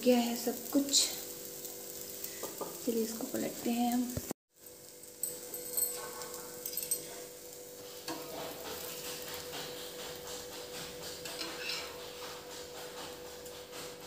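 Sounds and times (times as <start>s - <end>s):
dosa sizzling on griddle: 0.0s - 14.0s
metal spatula scraping: 5.2s - 13.0s.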